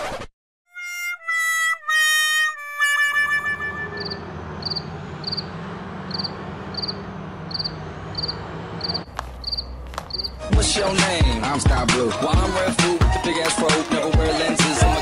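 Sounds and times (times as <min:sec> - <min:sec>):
cricket chirping: 0:04.0 - 0:10.4
loud music with heavy beat: 0:10.4 - 0:15.0.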